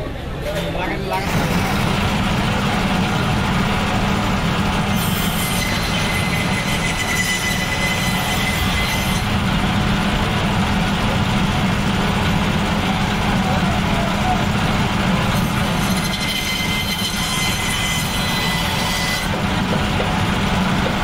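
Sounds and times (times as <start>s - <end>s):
band saw motor hum: 1.1s - 21.0s.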